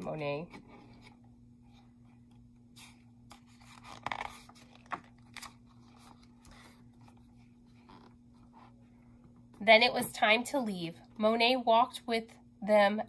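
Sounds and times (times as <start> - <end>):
faint steady hum: 0.0 - 13.0
book page rustling: 2.8 - 8.8.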